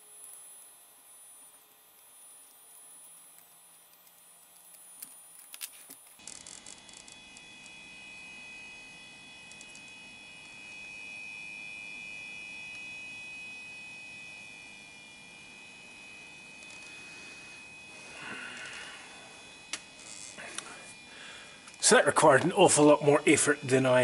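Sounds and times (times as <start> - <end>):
thin high whine: 0.0 - 24.0.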